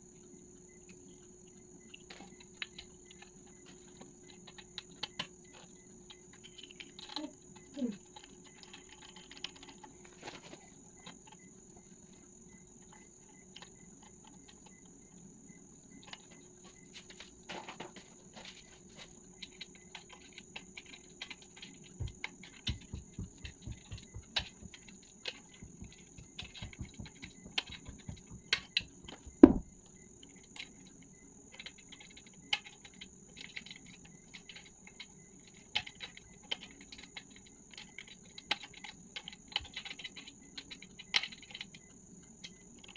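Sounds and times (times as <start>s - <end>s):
light clicks and taps: 19.4s - 29.6s
quick low thumps: 22.0s - 24.8s, 25.6s - 29.8s.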